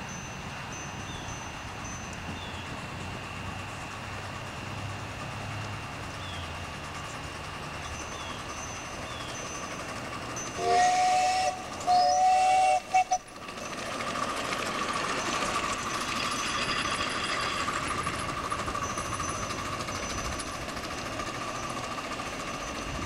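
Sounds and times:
steam locomotive hissing: 0:00.0 - 0:23.0
steam locomotive whistle: 0:10.5 - 0:13.3.

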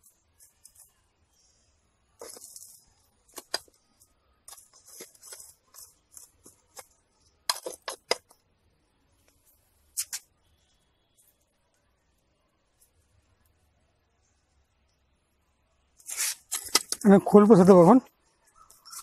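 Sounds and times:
metal tool scraping soil: 0:02.2 - 0:03.6, 0:04.5 - 0:06.9, 0:16.0 - 0:17.0.

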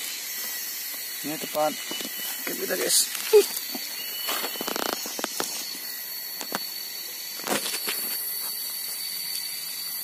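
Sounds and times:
footsteps on dry leaves and sticks: 0:00.0 - 0:09.1
steady high-pitched tone: 0:00.0 - 0:10.0.

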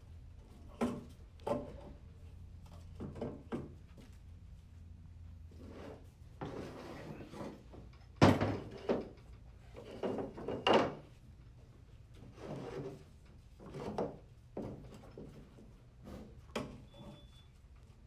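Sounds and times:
metal scraping on workbench: 0:05.6 - 0:07.6.

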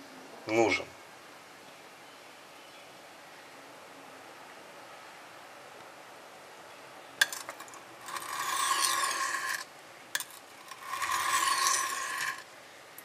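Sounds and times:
knife rasping on sharpening stone: 0:07.2 - 0:09.6, 0:10.2 - 0:12.4.

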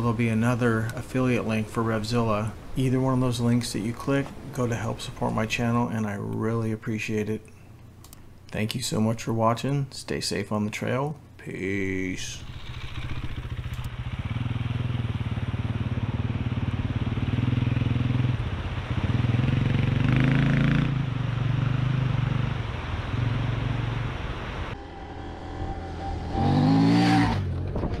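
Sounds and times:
motorcycle engine riding away: 0:12.3 - 0:28.0
motorcycle passing by: 0:12.4 - 0:28.0.

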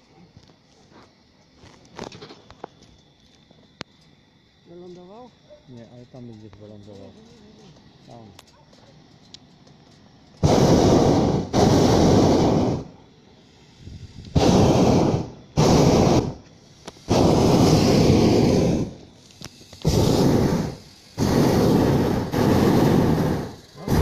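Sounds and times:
propane burner blasts: 0:09.3 - 0:24.0.

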